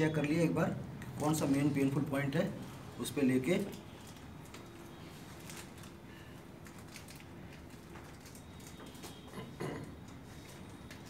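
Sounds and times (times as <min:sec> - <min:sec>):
faint clicks and rustles: 0:03.5 - 0:11.0.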